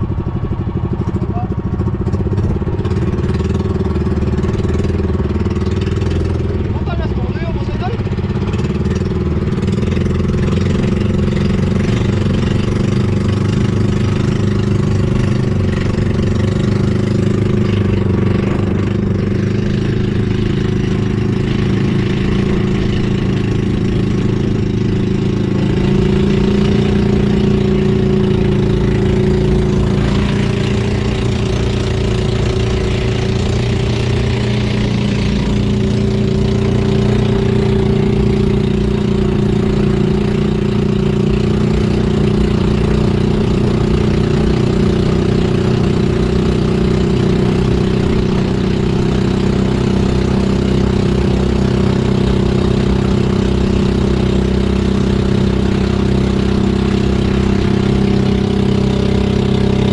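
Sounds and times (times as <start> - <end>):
boat engine running: 0.0 - 59.9.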